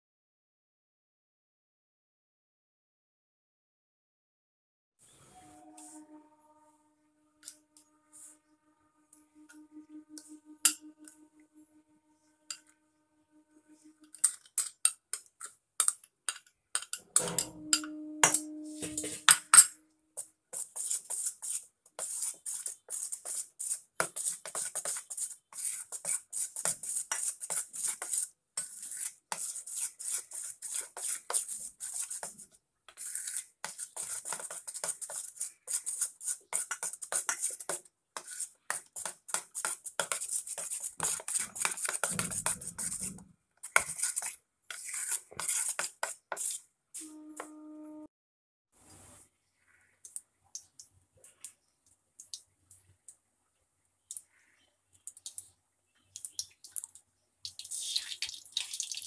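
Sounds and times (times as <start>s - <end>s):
spoon stirring batter in metal bowl: 13.8s - 46.7s.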